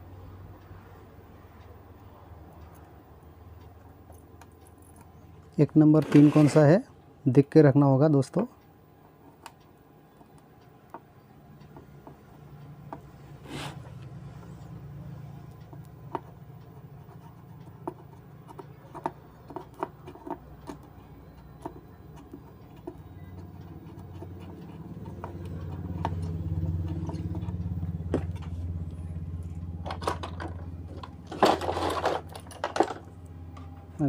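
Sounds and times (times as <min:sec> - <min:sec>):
low steady hum: 0:06.8 - 0:34.0
clatter of tools: 0:29.9 - 0:33.1.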